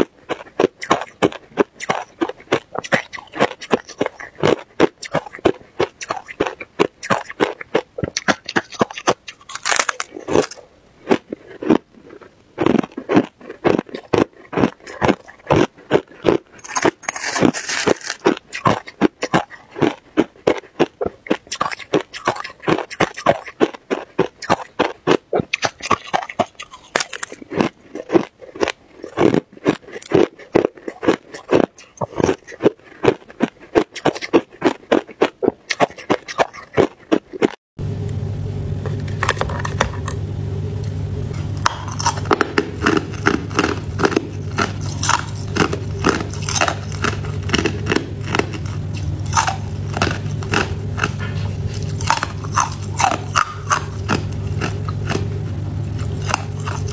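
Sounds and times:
ice crunched between teeth: 0.0 - 37.6, 41.6 - 55.3, 56.0 - 56.9
steady low hum: 0.0 - 56.9.

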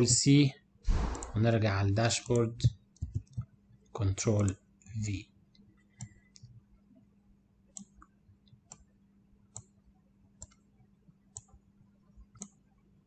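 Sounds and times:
faint computer mouse clicks: 6.0 - 6.5, 7.7 - 8.9, 9.5 - 9.7, 10.4 - 10.6, 11.3 - 11.6, 12.3 - 12.6.

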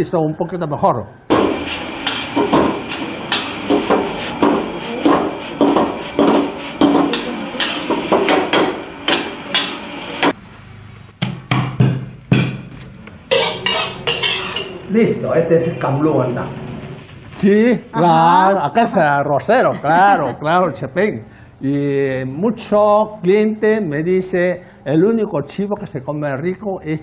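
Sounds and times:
food sizzling: 1.3 - 10.4, 13.3 - 18.8
metal ladle clanging on wok: 2.0 - 9.8, 13.3 - 14.9.

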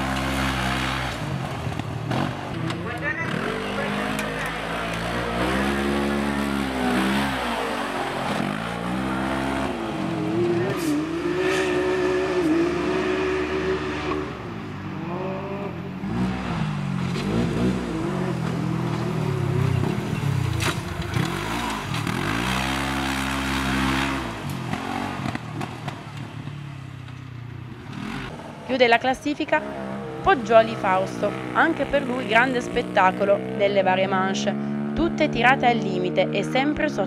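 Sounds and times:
race car engine revving hard: 0.0 - 26.0.

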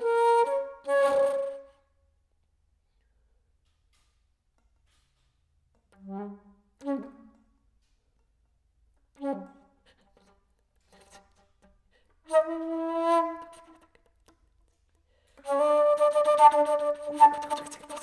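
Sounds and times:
solo flute playing: 0.0 - 1.8, 6.0 - 7.4, 9.2 - 9.7, 12.3 - 13.9, 15.4 - 18.0.

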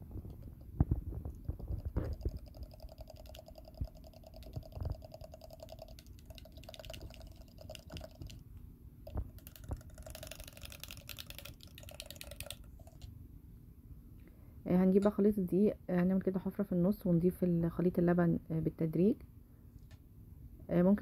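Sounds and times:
liquid sloshing: 0.0 - 8.4, 9.0 - 13.1.

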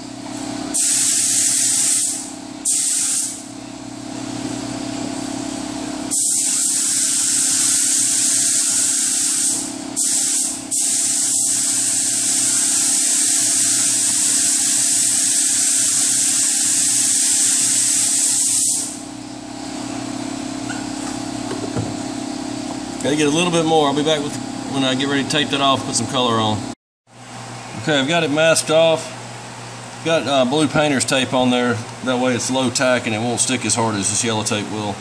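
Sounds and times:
spray can hissing: 0.8 - 3.4, 6.1 - 19.0.

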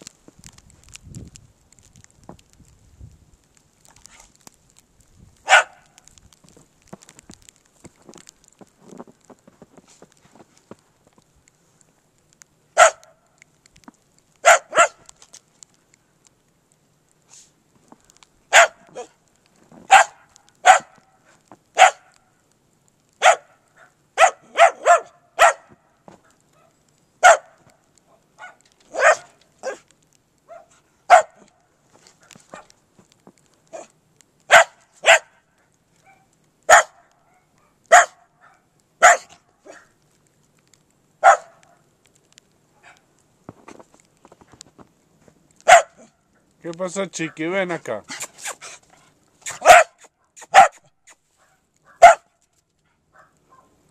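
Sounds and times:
small dog barking: 5.4 - 6.0, 12.8 - 13.2, 14.4 - 15.1, 18.5 - 19.2, 19.9 - 21.2, 21.8 - 22.2, 23.2 - 25.8, 26.5 - 29.9, 30.5 - 31.6, 33.7 - 33.9, 34.5 - 35.4, 36.0 - 40.0, 41.2 - 41.8, 42.8 - 43.0, 45.6 - 46.2, 49.5 - 52.3, 53.1 - 53.8.

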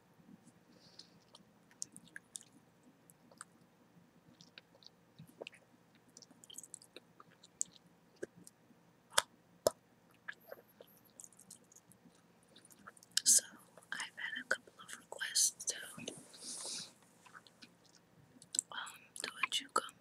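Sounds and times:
chewing gum mouth clicks: 3.2 - 3.5, 4.4 - 9.3, 11.2 - 12.0
gum snaps: 6.2 - 10.5, 17.3 - 18.7.

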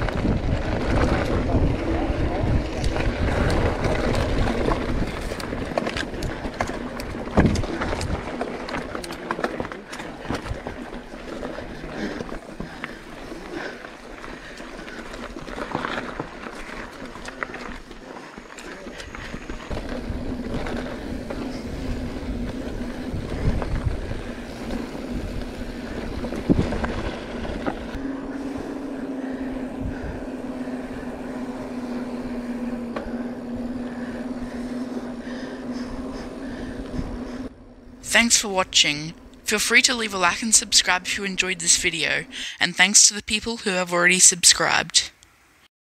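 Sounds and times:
bike rattling: 0.0 - 38.1
bike tyre rumble: 0.0 - 38.1
tyres humming on pavement: 0.0 - 45.7.

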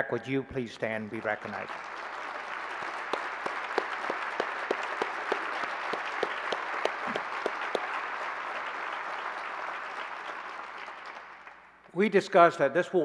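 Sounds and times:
audience applauding: 0.8 - 11.9
loud close claps: 1.0 - 12.0.

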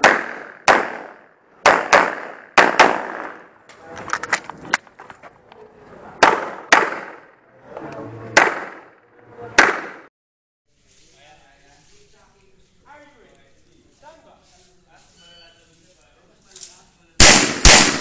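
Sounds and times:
pistol shots: 0.0 - 3.5, 6.2 - 7.3, 8.4 - 8.9, 9.6 - 10.1, 17.2 - 18.0.

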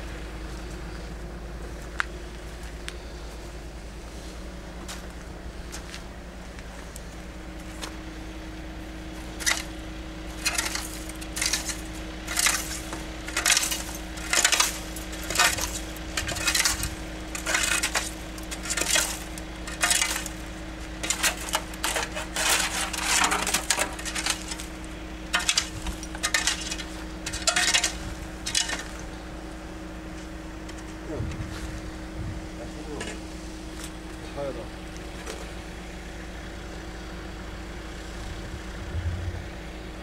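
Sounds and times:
tool scraping debris on tarmac: 9.1 - 29.4.

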